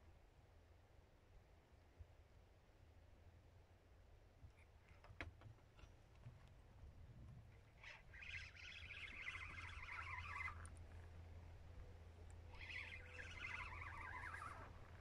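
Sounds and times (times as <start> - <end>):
fishing reel whirring: 7.6 - 11.4, 12.3 - 15.0.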